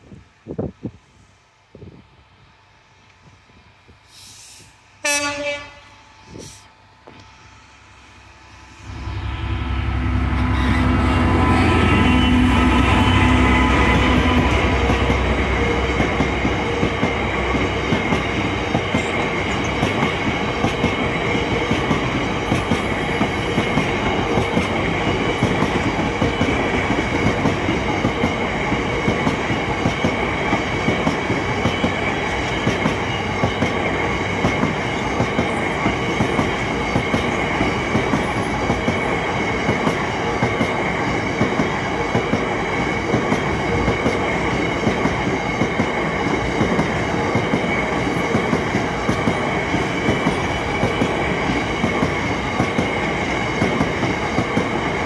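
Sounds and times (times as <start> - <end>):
diesel locomotive engine drone: 0.0 - 55.0
train wheels rumbling on rail: 8.0 - 55.0
wheels clickety-clack over rail joints: 14.0 - 55.0.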